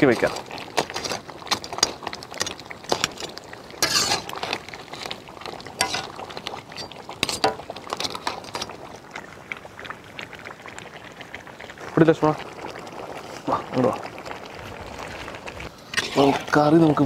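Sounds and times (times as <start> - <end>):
ladle scraping a pan: 0.2 - 5.2, 5.8 - 8.7, 15.6 - 17.0.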